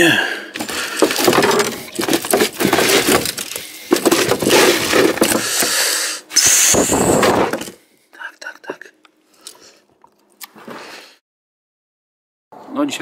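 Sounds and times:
brief high hiss: 6.3 - 7.2.

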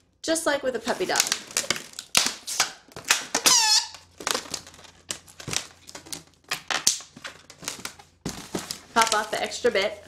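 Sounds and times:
balloons squeaking and rubbing: 2.4 - 4.2.

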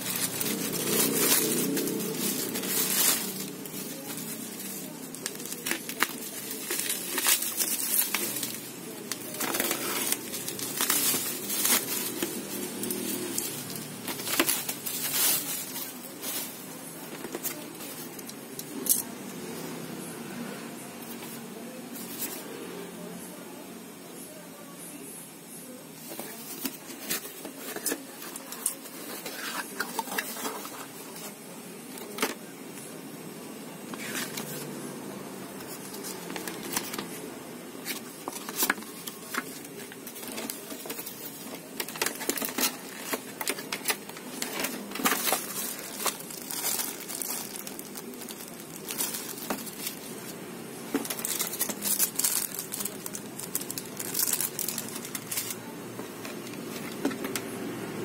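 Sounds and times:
cardboard scraping: 0.0 - 8.6
packaging rustling and crinkling: 0.0 - 19.1, 26.0 - 32.4, 33.9 - 34.8, 35.6 - 37.2, 37.8 - 57.4.

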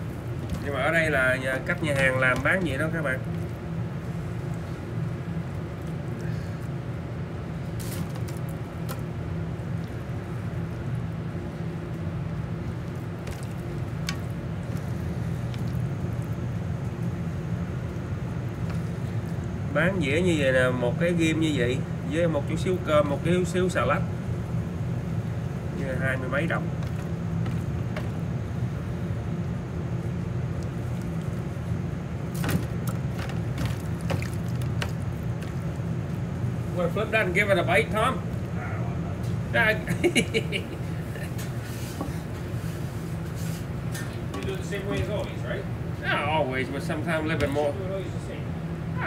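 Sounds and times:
kitchen equipment humming: 0.0 - 49.0.

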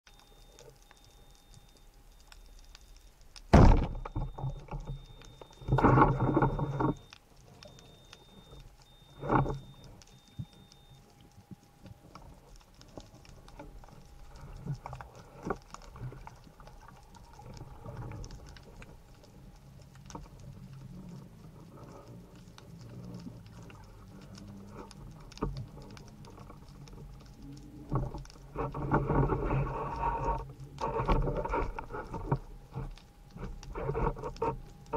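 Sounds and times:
low water rumble: 0.1 - 34.9
underwater clicking crackle: 0.1 - 34.9
sharp thump: 3.5 - 4.0.

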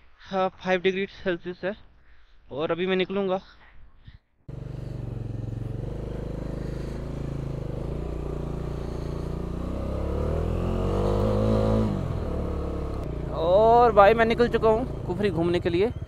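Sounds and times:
motorcycle engine revving: 4.5 - 16.0.

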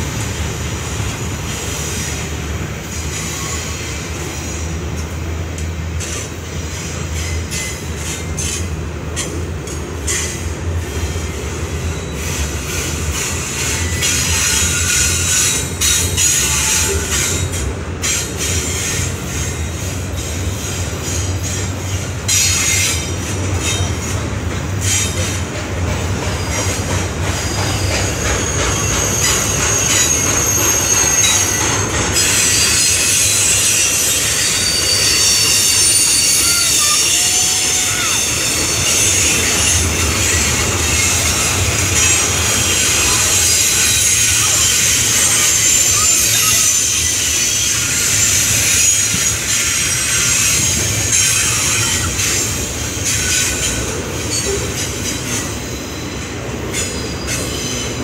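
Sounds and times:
steel wheels rumbling on rail: 0.0 - 58.0
high-pitched wheel squeal: 26.4 - 58.0.

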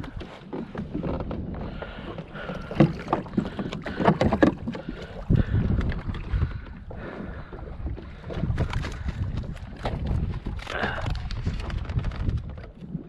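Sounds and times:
wind on microphone: 0.0 - 13.0
fishing gear knocking on kayak hull: 0.6 - 6.2.

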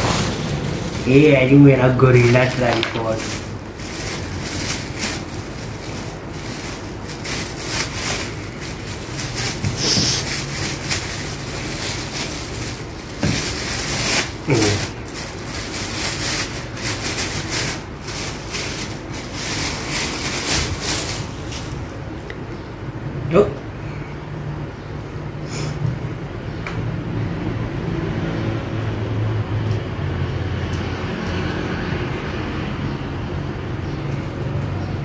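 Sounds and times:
plastic packaging crinkling: 0.0 - 22.1.

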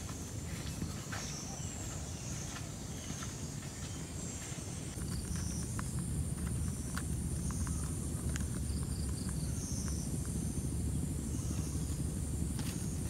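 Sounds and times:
high-pitched insect drone: 4.2 - 13.0
low rumble: 4.9 - 13.0.

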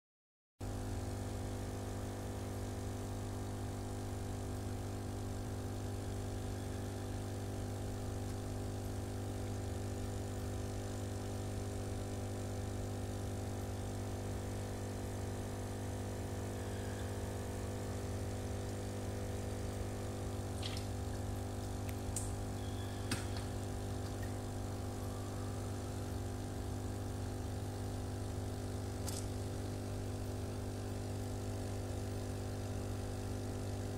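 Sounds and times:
aquarium pump humming: 0.6 - 33.9.

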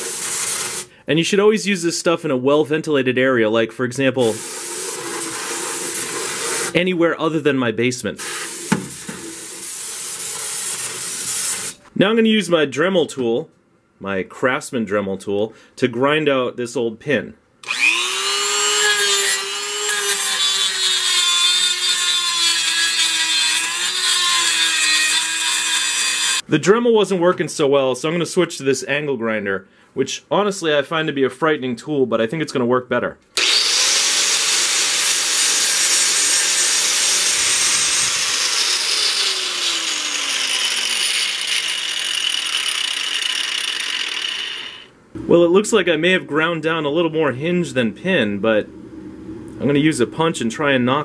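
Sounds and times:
rotary tool grinding metal: 17.6 - 26.4, 33.4 - 44.9.

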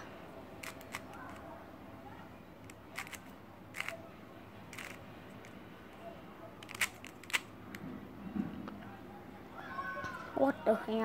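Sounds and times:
puzzle cube layers clicking: 0.6 - 1.4, 2.7 - 4.0, 4.7 - 5.0, 6.6 - 7.5.

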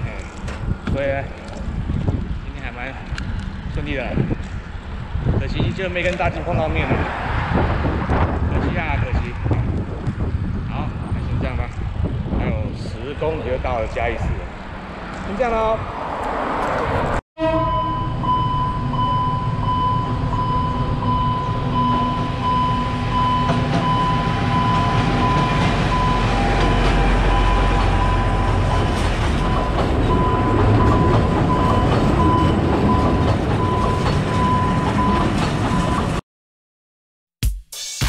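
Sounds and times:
diesel train passing: 13.0 - 36.2
crossing warning signal tone: 17.4 - 36.2.

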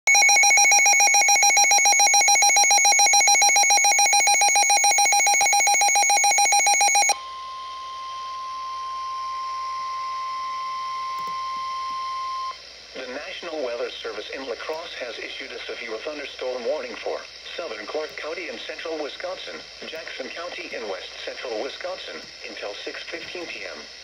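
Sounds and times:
rapidly pulsing radio alarm: 0.1 - 12.6
steady single-pitch alarm tone: 0.1 - 12.6.

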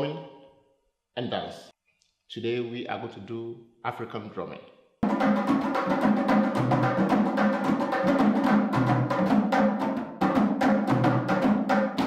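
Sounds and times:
djembes played by hand: 5.0 - 12.0.

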